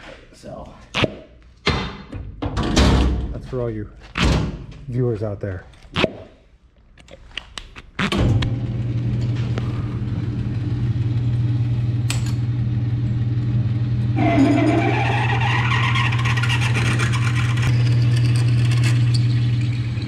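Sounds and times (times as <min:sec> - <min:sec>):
metal lathe motor hum: 0:08.6 - 0:20.0
drill bit cutting metal: 0:14.2 - 0:19.5.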